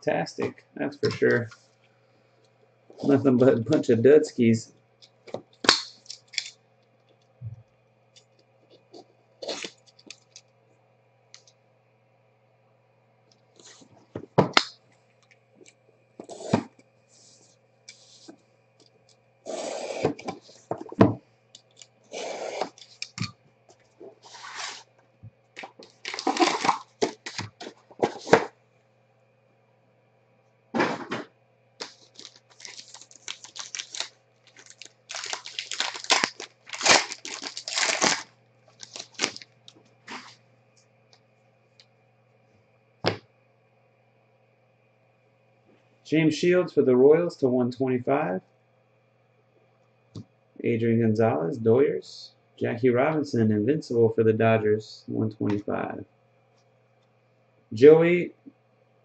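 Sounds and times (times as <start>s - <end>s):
foil wrappers crinkling and tearing: 22.6s - 23.3s, 25.6s - 27.8s, 31.8s - 40.3s.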